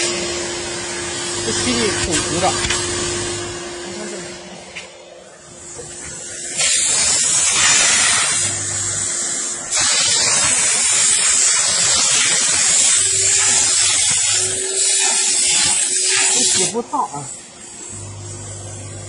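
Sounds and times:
steam jet hissing: 0.0 - 19.0
low machine hum: 17.9 - 19.0.

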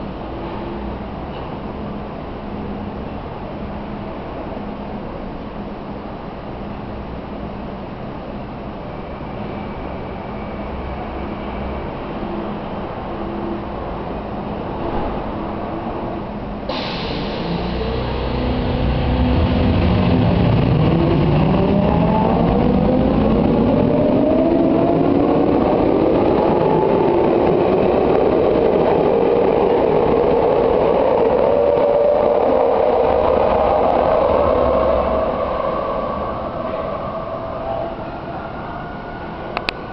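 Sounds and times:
hiss: 16.7 - 18.8.

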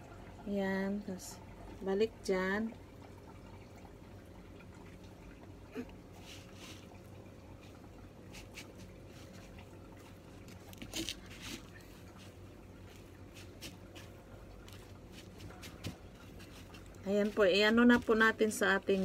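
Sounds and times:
wet squishing and crumbly rustling: 6.2 - 19.0.

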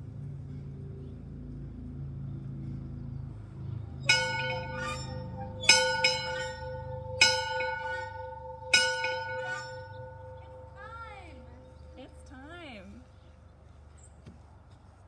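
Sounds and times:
dinner bell ringing: 4.1 - 12.3.

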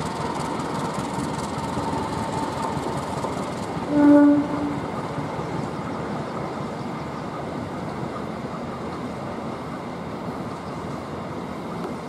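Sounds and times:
passenger train rushing past: 0.0 - 12.0
train horn: 3.9 - 4.8.

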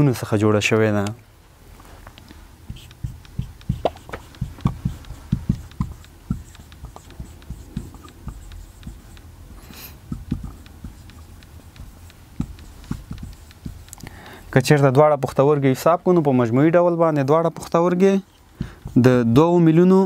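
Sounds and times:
marker writing on whiteboard: 2.6 - 16.4, 17.7 - 19.6.

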